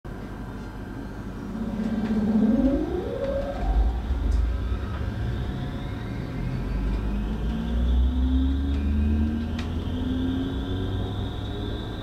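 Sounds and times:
train rumble: 0:00.1 - 0:12.0
train motor whine: 0:00.8 - 0:12.0.

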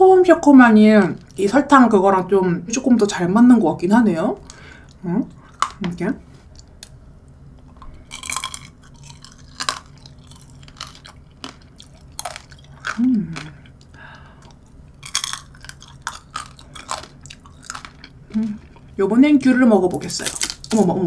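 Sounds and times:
sugar shell crunching: 0:04.4 - 0:19.1, 0:19.7 - 0:21.0
juicy fruit chewing: 0:07.6 - 0:19.0
person humming: 0:13.0 - 0:13.6, 0:18.3 - 0:18.6.

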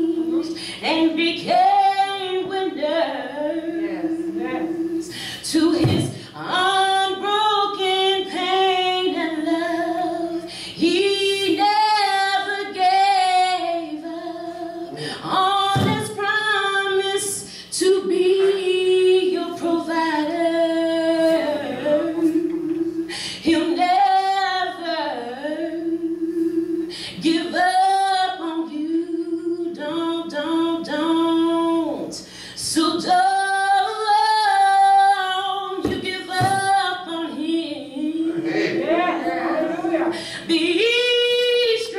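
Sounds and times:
woman singing a cappella: 0:00.0 - 0:41.9.

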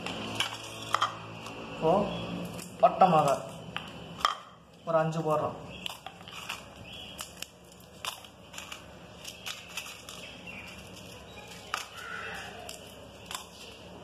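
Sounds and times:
dried chillies clicking and crackling: 0:02.2 - 0:04.9, 0:05.7 - 0:14.0.

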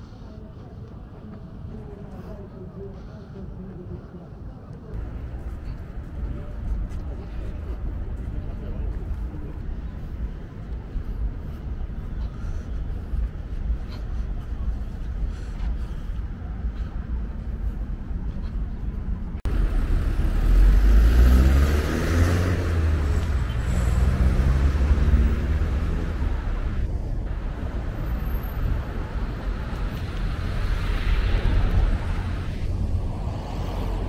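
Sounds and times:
road traffic noise: 0:04.9 - 0:34.0
vehicle engine passing close: 0:19.5 - 0:27.9.

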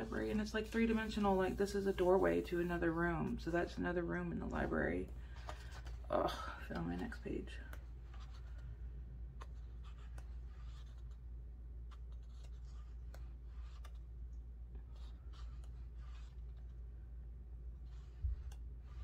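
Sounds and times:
paper pages turning: 0:09.4 - 0:11.2, 0:11.8 - 0:14.1.

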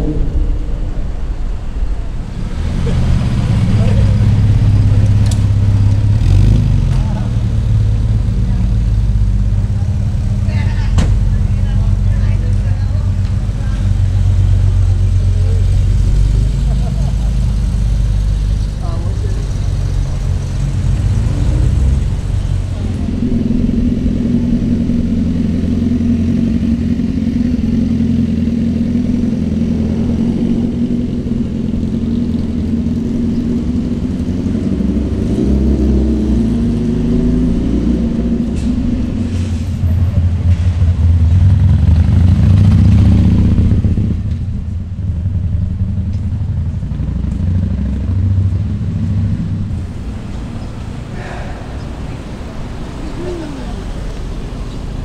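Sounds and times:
traffic engines running: 0:00.0 - 0:55.0
vehicle passing close: 0:00.0 - 0:55.0.

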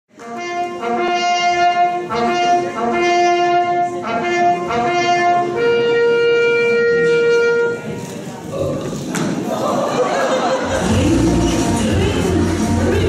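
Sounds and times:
brass music held chords: 0:00.2 - 0:08.0, 0:10.7 - 0:13.0.

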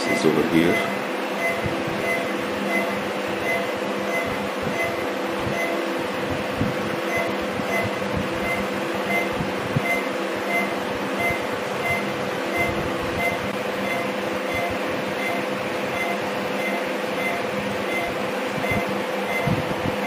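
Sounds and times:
equipment hum and hiss: 0:00.0 - 0:20.0
faint high beep: 0:00.6 - 0:05.8.

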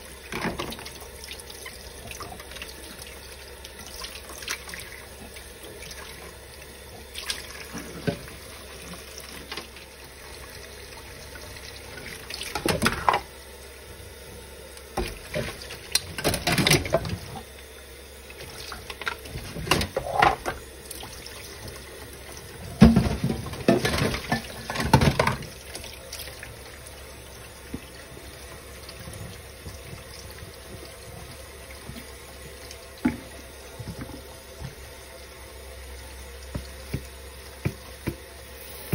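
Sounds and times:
dishes clattering: 0:19.4 - 0:20.6.

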